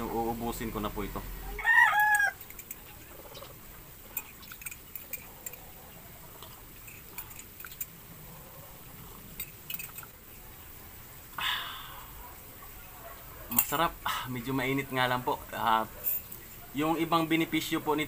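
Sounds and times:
metal spoon clinking against mug: 4.1s - 5.7s, 9.4s - 10.1s.

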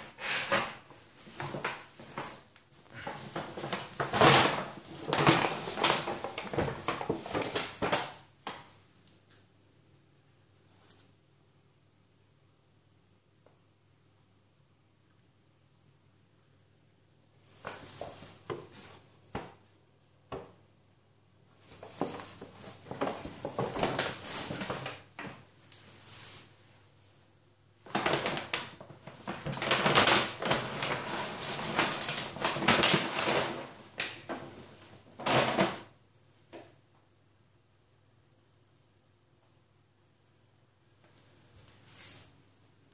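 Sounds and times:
cat scrabbling in bag: 0.0s - 8.2s, 21.8s - 25.4s, 27.9s - 35.9s
paper bag rustling and crinkling: 0.0s - 8.7s, 21.6s - 26.5s, 27.8s - 35.9s.

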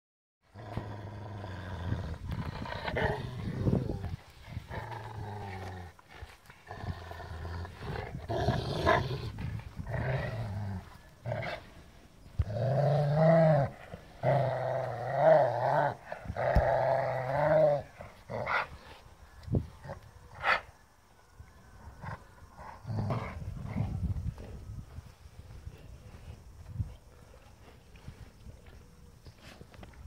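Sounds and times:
dogs play-growling: 0.5s - 19.0s, 22.0s - 24.6s.

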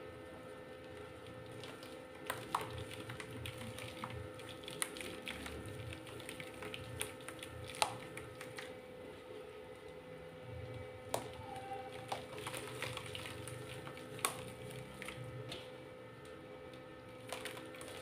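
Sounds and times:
dry mud crumbling into basin: 0.8s - 8.7s, 10.8s - 15.7s, 17.2s - 18.0s.

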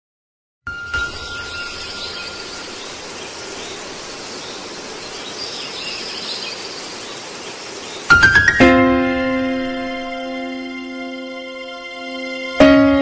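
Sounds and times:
faint wavering high tones: 0.7s - 4.0s
steady hiss: 0.8s - 10.9s.

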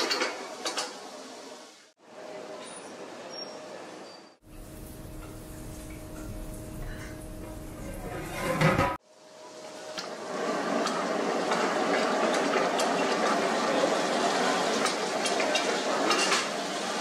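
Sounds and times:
food sizzling in a frying pan: 4.4s - 8.9s, 9.6s - 17.0s
metal ladle scraping a pan: 7.9s - 9.0s.

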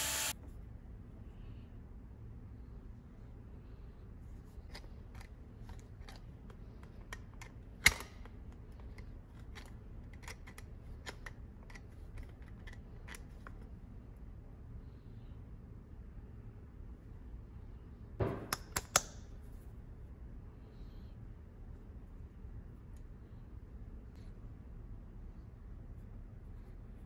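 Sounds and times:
metallic clicks and taps: 18.3s - 19.2s.

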